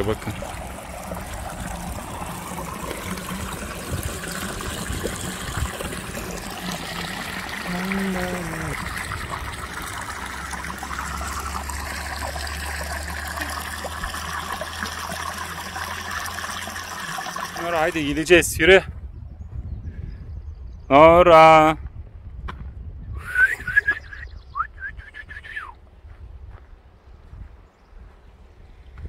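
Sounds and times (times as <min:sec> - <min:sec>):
water trickling over rocks: 0:00.0 - 0:18.5.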